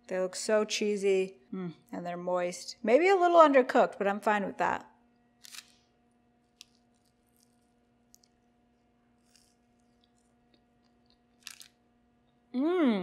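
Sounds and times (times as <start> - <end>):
faint hum: 0.0 - 13.0
person biting and chewing: 5.4 - 5.7, 9.2 - 11.8.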